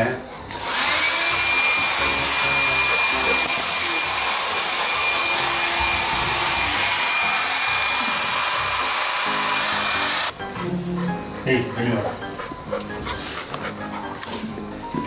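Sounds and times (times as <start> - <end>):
hair dryer running: 0.4 - 10.4.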